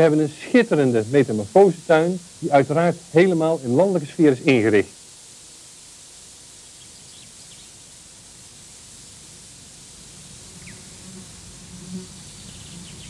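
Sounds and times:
tape hiss: 0.0s - 13.0s
faint bird chirps: 6.5s - 7.9s, 10.6s - 10.9s, 12.0s - 13.0s.

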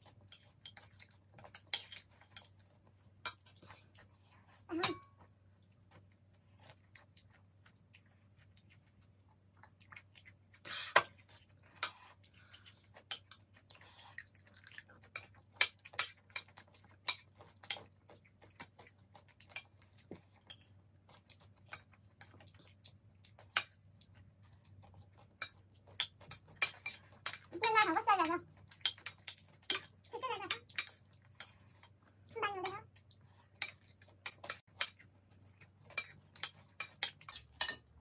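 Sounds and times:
cutlery clinking on ceramic plates: 0.3s - 2.6s, 28.8s - 32.0s, 35.9s - 38.0s.

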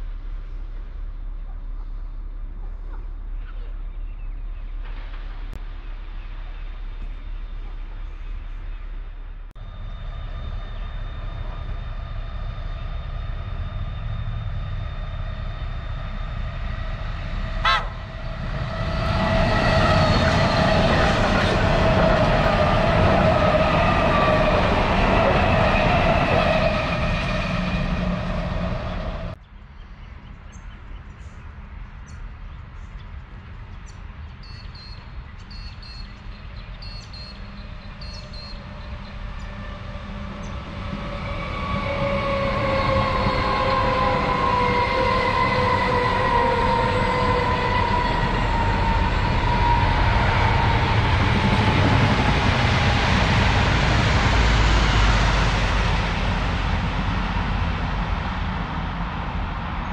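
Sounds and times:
train whine: 0.0s - 29.4s, 34.1s - 59.9s
train rumbling: 0.0s - 29.5s, 30.3s - 59.9s.

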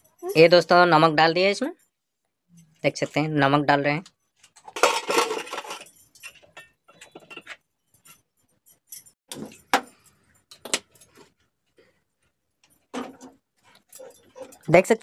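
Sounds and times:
metal cookware clinking: 4.6s - 11.2s.

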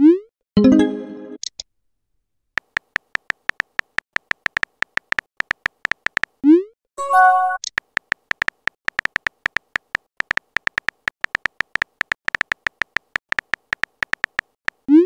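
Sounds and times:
synthetic keyboard tap clicks: 2.6s - 6.4s, 7.6s - 14.9s.

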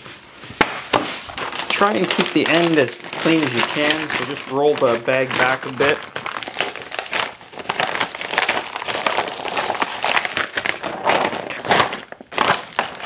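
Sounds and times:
plastic bag crinkling: 0.1s - 13.0s.

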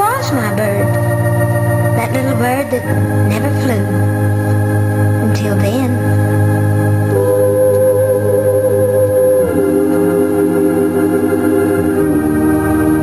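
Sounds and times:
slow organ-like chords: 0.0s - 13.0s.

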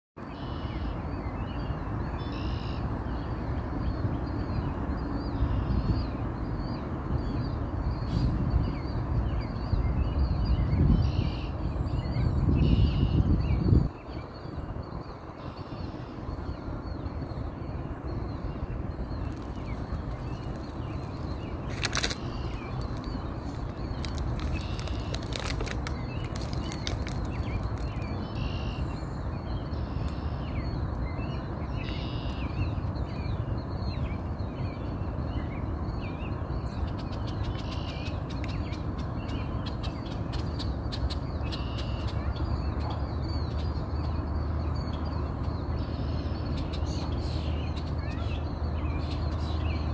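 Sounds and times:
bird calls: 10.4s - 49.9s
feather rustles and clicks: 19.2s - 28.2s.

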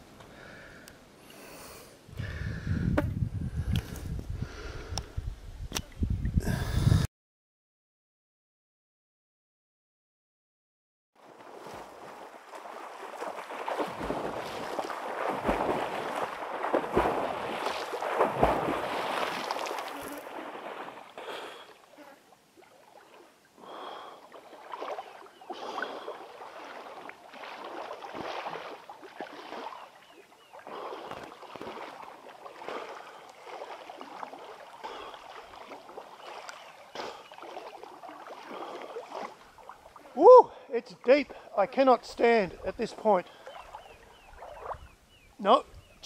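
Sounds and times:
water splashing from swimming: 11.2s - 40.6s, 41.3s - 45.0s.

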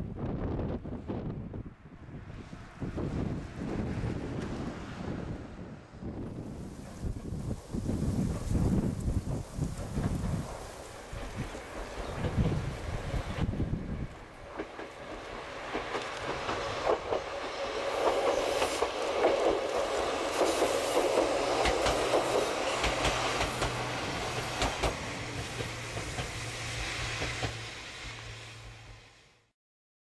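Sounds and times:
electric train passing: 0.0s - 29.5s
wheels clicking over rail joints: 6.8s - 26.4s.

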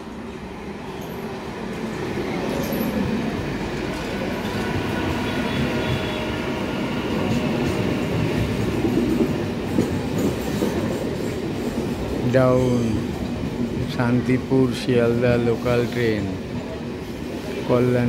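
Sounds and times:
train wheels rumbling on rails: 0.0s - 18.0s
rail joint clicks: 7.1s - 14.5s.

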